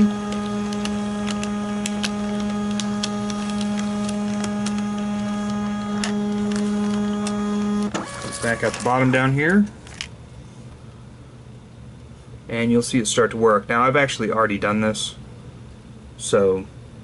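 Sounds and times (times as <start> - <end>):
scanner feed motor humming: 0.0 - 9.9.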